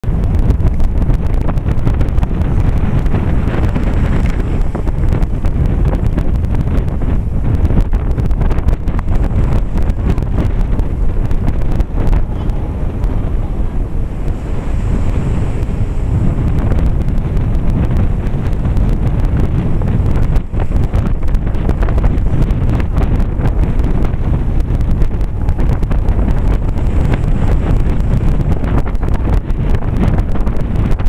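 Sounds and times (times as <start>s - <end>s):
wind buffeting microphone: 0.0s - 31.0s.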